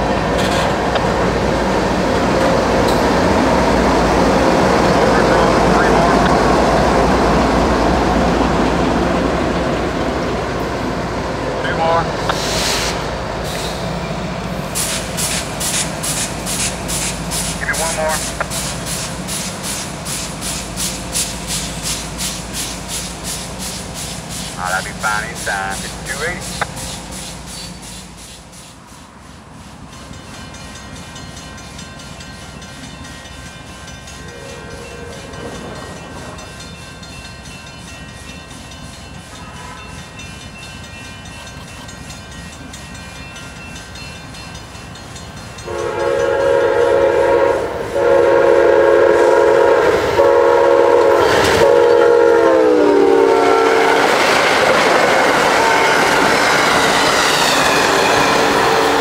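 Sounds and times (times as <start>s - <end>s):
train cars rushing past on rails: 0.0s - 59.0s
train horn: 34.2s - 35.6s, 45.6s - 54.4s, 55.1s - 56.8s, 58.3s - 59.0s.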